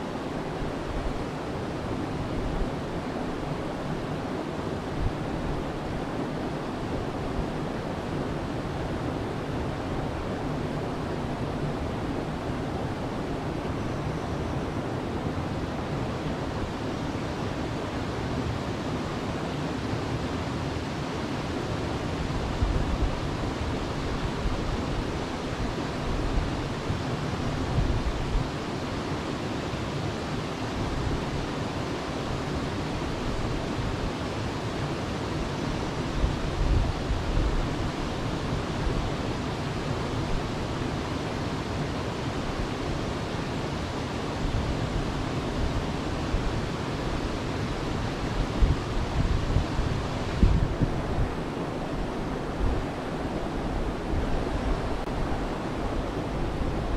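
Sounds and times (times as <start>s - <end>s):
wind buffeting microphone: 44.4s - 56.9s.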